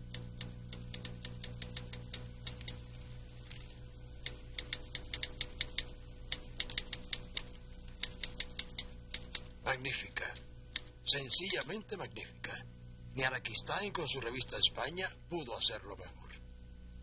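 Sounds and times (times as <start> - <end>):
steady low hum: 0.0 - 17.0
typewriter keys clacking: 4.6 - 9.6.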